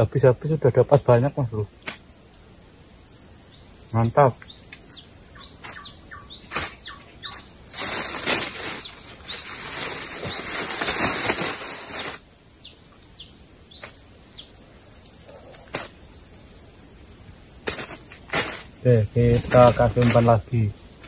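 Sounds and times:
high insect drone: 0.0s - 21.0s
bird wingbeats and rustling: 5.5s - 12.2s, 17.6s - 20.4s.

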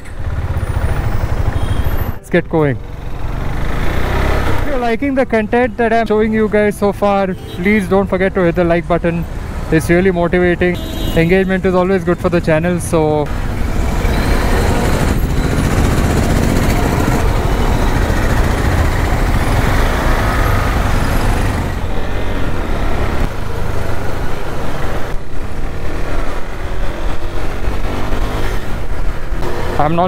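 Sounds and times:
motorcycle engine running: 0.0s - 4.6s, 13.3s - 21.9s
wind and road noise: 0.0s - 30.0s.

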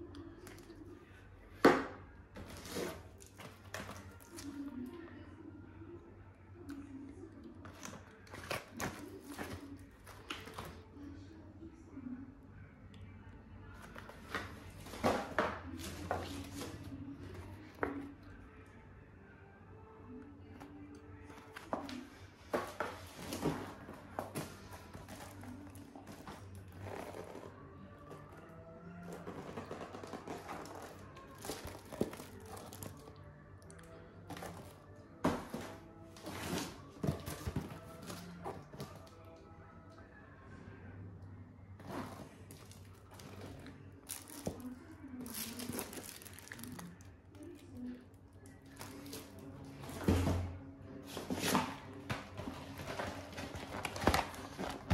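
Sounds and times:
plastic wrap crinkling: 42.1s - 47.0s.

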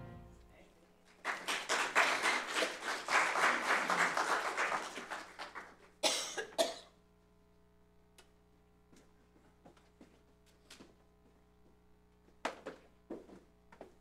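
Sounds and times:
congregation applauding: 1.1s - 6.0s.

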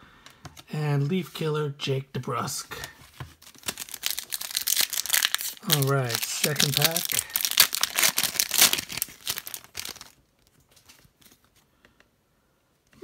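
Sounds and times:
cards rustling: 2.7s - 11.7s
foil wrapper crinkling and tearing: 2.8s - 11.5s.

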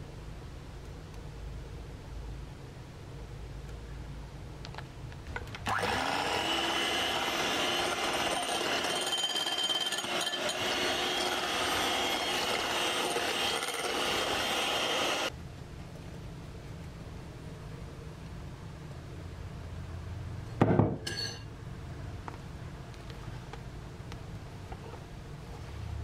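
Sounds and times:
electric hand mixer whirring: 5.7s - 15.3s.

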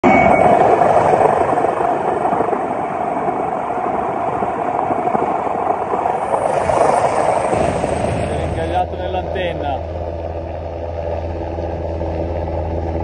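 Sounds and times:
helicopter engine and rotors: 0.0s - 13.0s.

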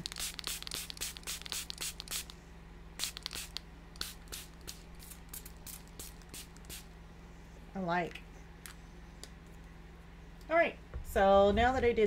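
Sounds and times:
spray bottle spritzing: 0.0s - 2.4s, 3.0s - 6.9s.

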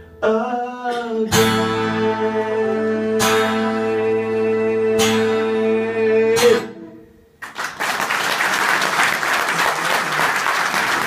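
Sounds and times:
acoustic guitar chord strummed: 0.0s - 7.4s
audience applause: 7.4s - 11.0s.

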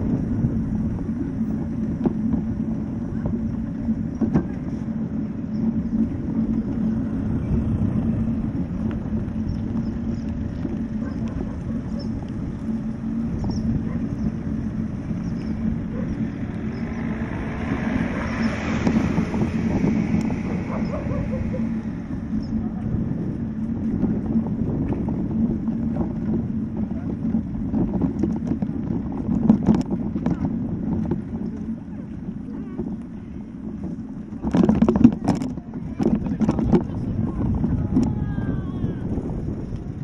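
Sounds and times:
two-wheeled vehicle rumbling: 0.0s - 40.0s.

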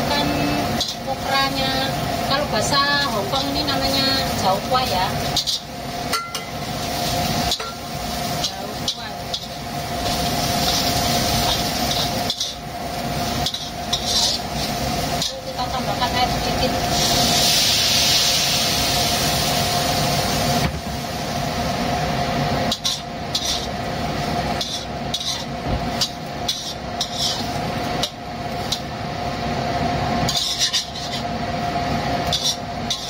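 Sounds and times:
food sizzling in a pan: 0.0s - 33.0s
range hood fan humming: 0.0s - 33.0s
spatula scraping and clinking pan: 13.4s - 14.4s, 24.6s - 27.5s, 30.3s - 31.3s, 32.3s - 33.0s.

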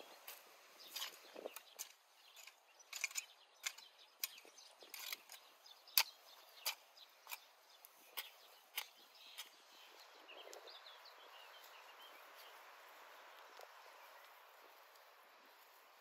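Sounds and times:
hoe chopping and scraping soil: 0.0s - 9.9s.

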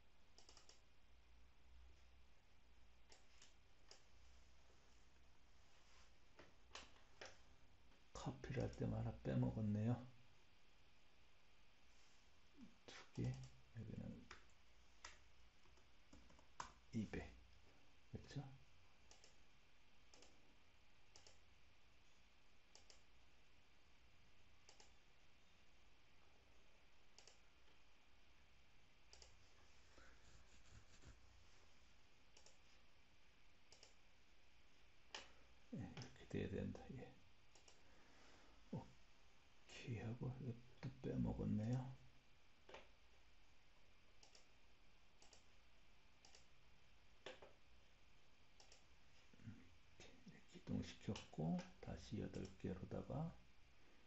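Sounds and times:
faint computer mouse clicks: 0.4s - 0.8s, 3.1s - 4.1s, 19.1s - 19.4s, 20.1s - 20.4s, 21.1s - 21.4s, 22.7s - 23.1s, 24.6s - 25.0s, 27.2s - 27.4s, 29.1s - 29.4s, 32.3s - 32.8s, 33.7s - 34.0s, 37.5s - 37.8s, 44.2s - 44.5s, 45.2s - 45.5s, 46.2s - 46.5s, 48.6s - 48.9s, 51.1s - 52.6s.

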